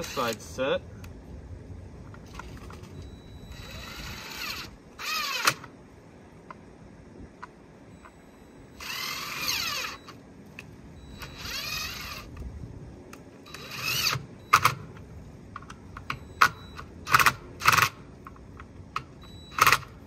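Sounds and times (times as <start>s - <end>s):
cordless drill boring into wood: 3.5s - 5.6s, 8.8s - 10.0s.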